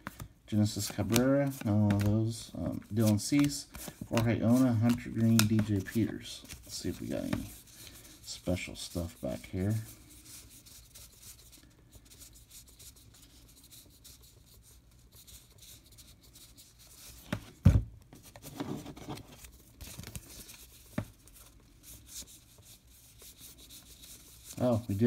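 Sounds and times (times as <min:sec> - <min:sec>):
cardboard cards sliding and rubbing: 0:02.7 - 0:17.6, 0:18.2 - 0:25.0.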